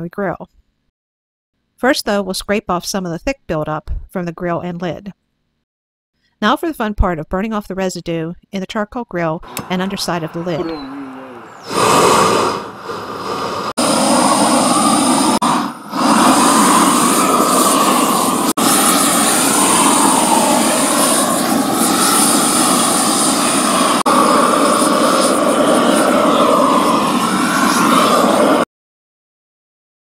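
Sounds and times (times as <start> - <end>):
weed torch roaring: 9.4 - 28.6.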